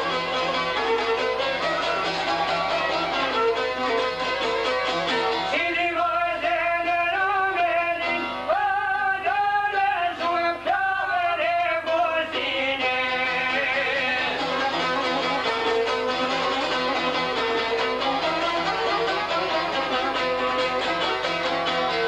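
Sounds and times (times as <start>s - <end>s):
plucked lute and fiddle: 0.0s - 8.4s, 12.0s - 22.0s
man singing ornamented phrases: 5.5s - 14.5s.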